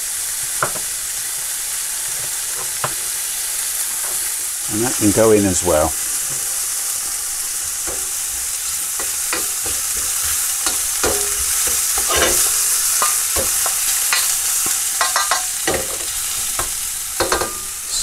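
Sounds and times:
onions and mushrooms sizzling in oil: 0:00.0 - 0:18.0
spatula scraping a pan: 0:00.4 - 0:04.6, 0:06.0 - 0:18.0.

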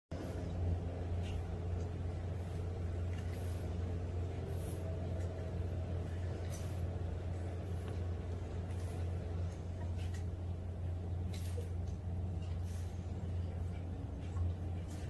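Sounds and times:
steady low hum: 0:00.1 - 0:15.0.

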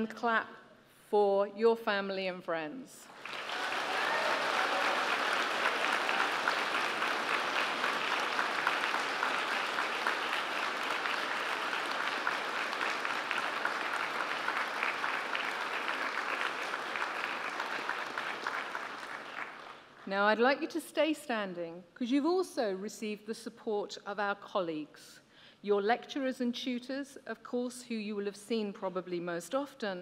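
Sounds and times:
large crowd applauding: 0:03.1 - 0:20.1.

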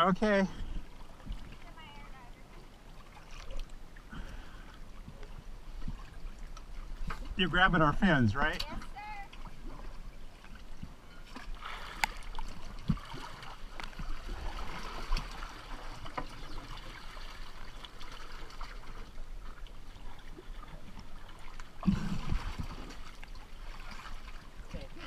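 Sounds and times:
seawater sloshing and gurgling: 0:00.0 - 0:25.0.

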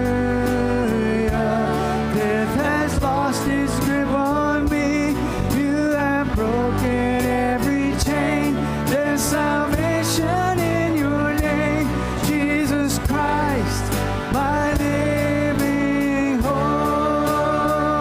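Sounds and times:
rock band playing: 0:00.0 - 0:18.0
woman singing lead vocal: 0:06.6 - 0:18.0.

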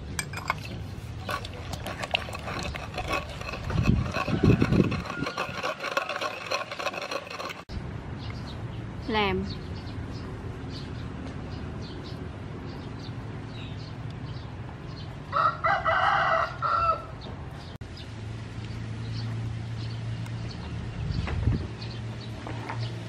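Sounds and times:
rooster crowing: 0:04.2 - 0:06.2, 0:15.3 - 0:17.2.

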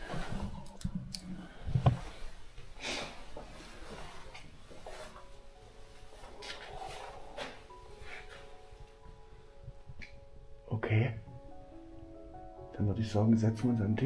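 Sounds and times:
rustling: 0:00.0 - 0:09.3
faint held music tones: 0:00.0 - 0:14.0.

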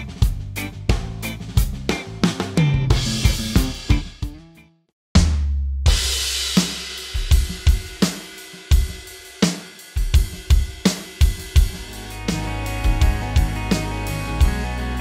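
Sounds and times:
snare drum: 0:00.0 - 0:04.4, 0:05.2 - 0:13.8
bass drum: 0:00.0 - 0:09.0, 0:10.0 - 0:15.0
drum kit playing a groove: 0:00.0 - 0:15.0
hi-hat: 0:06.5 - 0:14.9.

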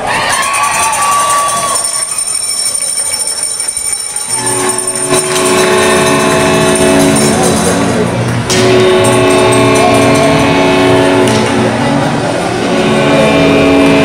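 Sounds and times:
crowd noise: 0:00.0 - 0:14.0
goal horn blaring: 0:04.3 - 0:14.0.

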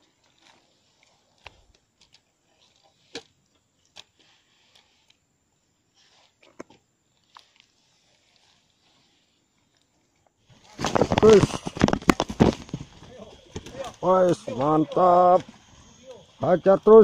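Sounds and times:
faint clicks and crackles: 0:06.0 - 0:16.3.

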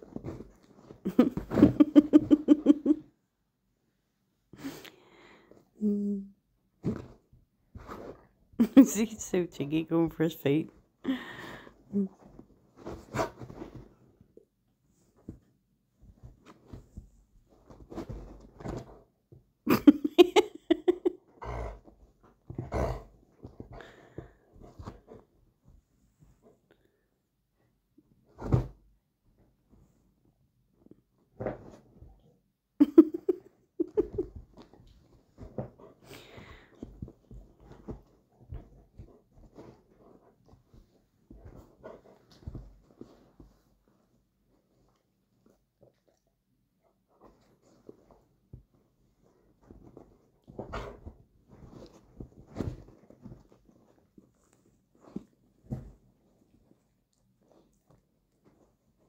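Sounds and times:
dogs snuffling breaths: 0:22.6 - 0:25.4, 0:35.7 - 0:43.8.

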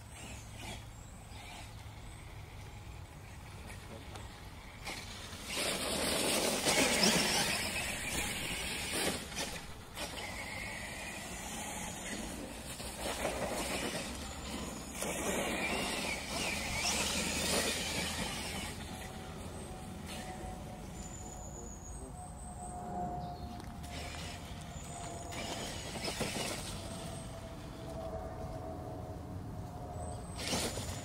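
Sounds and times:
rc truck electric motor whining: 0:00.0 - 0:21.9, 0:23.8 - 0:27.9, 0:30.2 - 0:31.0
tyre noise on dirt: 0:04.8 - 0:19.1, 0:23.9 - 0:27.3.

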